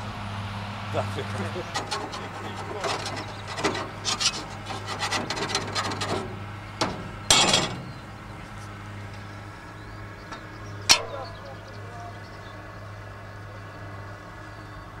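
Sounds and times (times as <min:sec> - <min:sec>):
gloved hands scraping metal: 0:01.4 - 0:09.3, 0:10.3 - 0:11.5.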